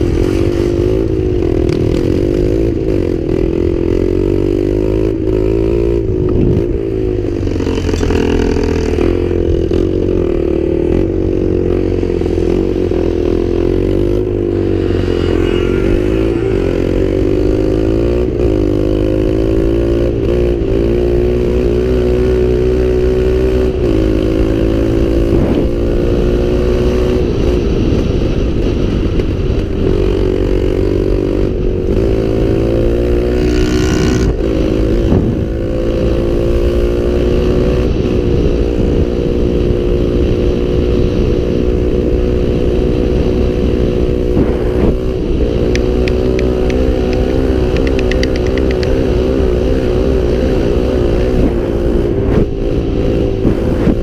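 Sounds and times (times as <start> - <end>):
light ticks: 45.7 - 49.0.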